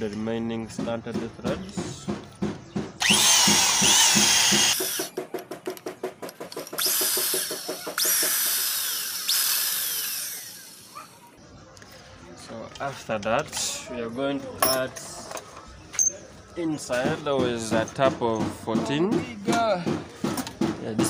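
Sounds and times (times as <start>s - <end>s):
electric hand drill boring metal: 3.0s - 5.0s, 6.8s - 11.0s.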